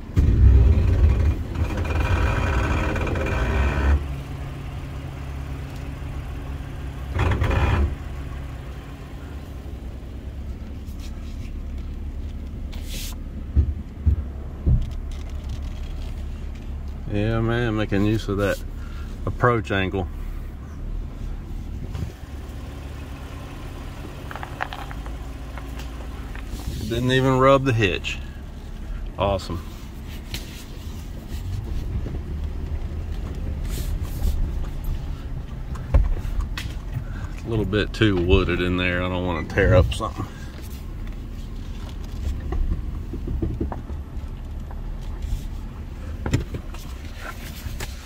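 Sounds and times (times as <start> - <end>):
truck engine revving: 0.0 - 4.4, 7.0 - 8.3
truck engine idling: 0.0 - 48.0.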